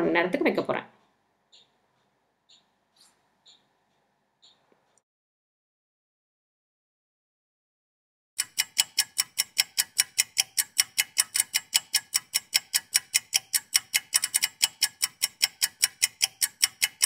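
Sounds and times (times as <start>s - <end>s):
clock ticking: 1.0s - 2.7s, 8.4s - 17.0s.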